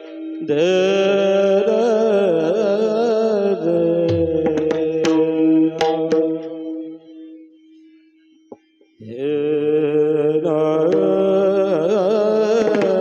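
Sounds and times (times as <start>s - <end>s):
men singing: 0.0s - 6.6s, 9.0s - 13.0s
steady drone note: 3.7s - 7.9s
drum strokes: 3.8s - 6.7s, 12.6s - 13.0s.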